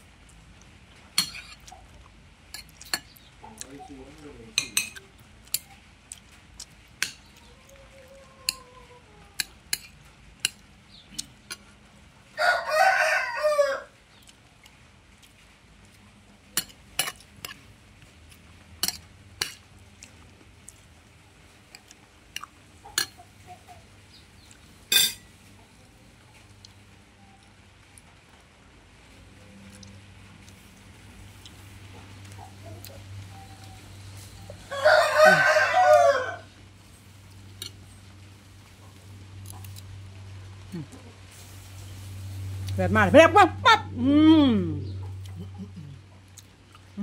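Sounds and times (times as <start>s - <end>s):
rooster crowing: 12.4s - 14.0s, 34.5s - 36.5s.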